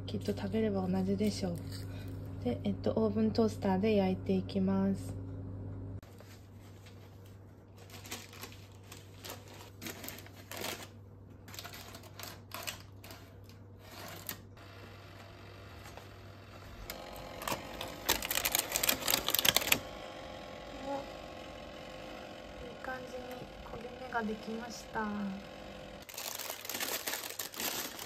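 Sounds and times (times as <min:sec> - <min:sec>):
steady hum: 0:00.0 - 0:07.4, 0:14.5 - 0:26.1
parchment paper rustling: 0:06.0 - 0:14.4, 0:17.4 - 0:19.9, 0:26.0 - 0:28.0.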